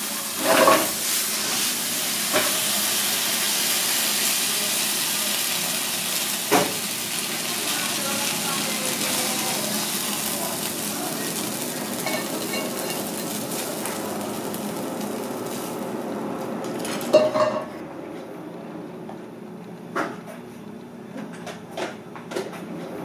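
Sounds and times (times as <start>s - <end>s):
stir-fry sizzling in a pan: 0.0s - 17.8s.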